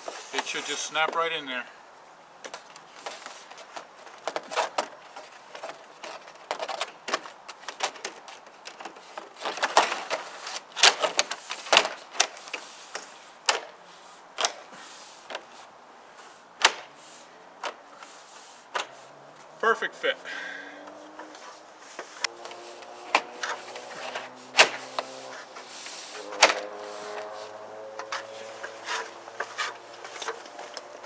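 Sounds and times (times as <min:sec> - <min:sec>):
vinyl siding clattering and clicking: 0:02.4 - 0:13.8, 0:21.2 - 0:31.0.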